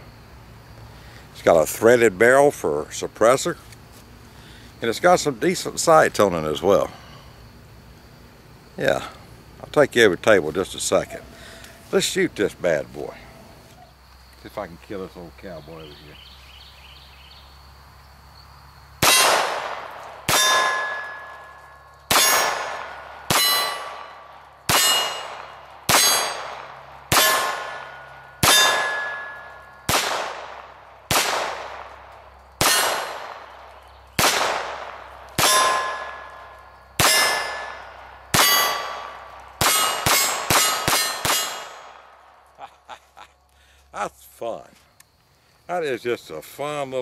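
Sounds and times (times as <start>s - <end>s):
pistol shots: 19.0s - 32.0s, 32.6s - 42.1s
steel plate ringing: 20.3s - 29.9s, 35.4s - 41.8s.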